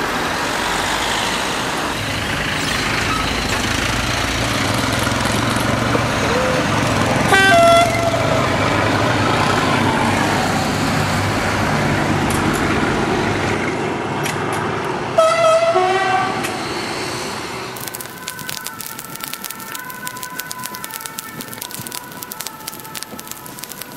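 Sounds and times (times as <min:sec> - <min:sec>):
model train horn: 0:07.3 - 0:08.3, 0:15.2 - 0:16.5.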